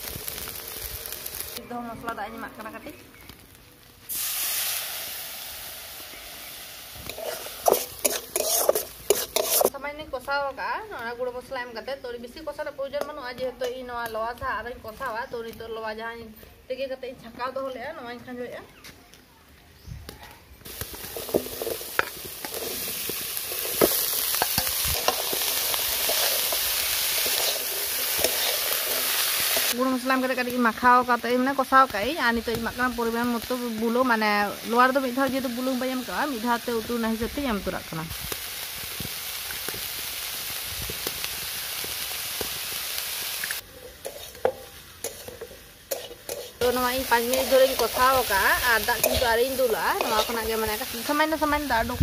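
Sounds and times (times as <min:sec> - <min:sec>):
food sizzling in a pan: 0:00.0 - 0:15.7, 0:20.6 - 0:52.0
spatula scraping a pan: 0:07.0 - 0:09.8, 0:20.8 - 0:29.7, 0:43.7 - 0:50.8.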